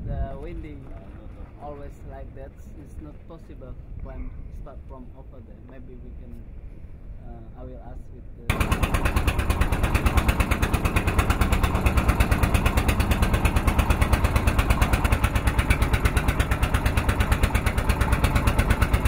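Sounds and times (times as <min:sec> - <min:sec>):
boat engine thumping: 0:08.5 - 0:19.0.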